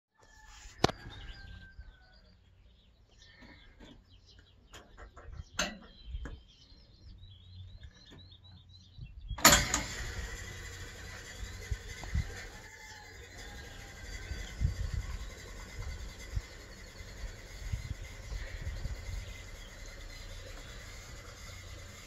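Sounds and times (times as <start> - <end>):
birds chirping: 0.8 - 22.0
washing machine rushing: 9.4 - 22.0.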